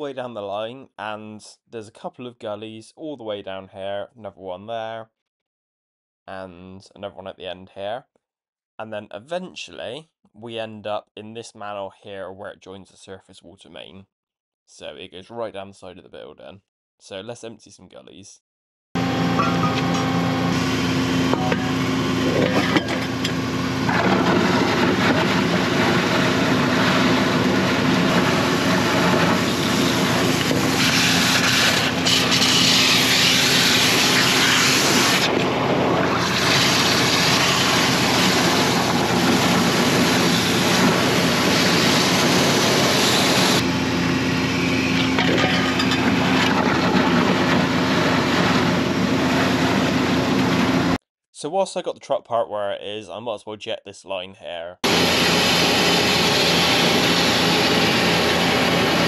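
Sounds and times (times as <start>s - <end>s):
vacuum tanker machine drone: 19.0s - 51.0s, 54.8s - 59.0s.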